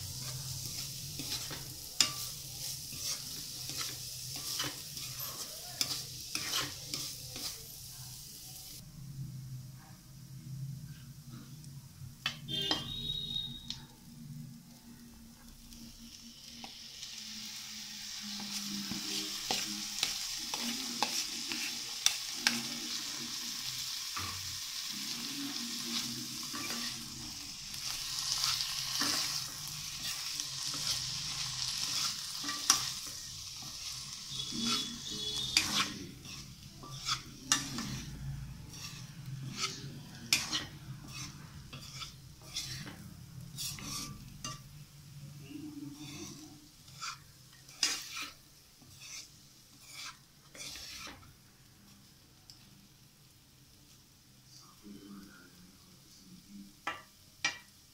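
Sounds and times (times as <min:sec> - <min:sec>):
spatula scraping pan: 0:00.0 - 0:07.8, 0:18.2 - 0:44.8, 0:45.6 - 0:51.3
vegetables sizzling in oil: 0:00.0 - 0:08.8, 0:10.7 - 0:57.9.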